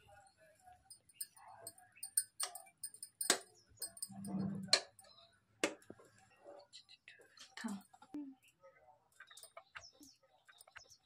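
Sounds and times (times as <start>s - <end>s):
spoon clinking against pot: 0.8s - 5.2s.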